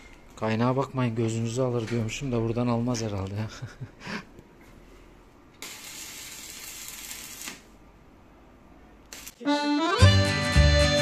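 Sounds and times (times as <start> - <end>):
welding arc hissing: 5.6 - 7.8, 9.1 - 9.4
background music: 9.4 - 11.0.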